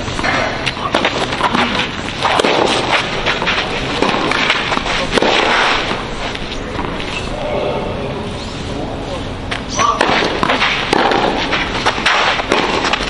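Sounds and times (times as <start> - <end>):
steady background noise: 0.0 - 13.0
tennis ball struck by racquets: 0.2 - 6.0, 9.5 - 13.0.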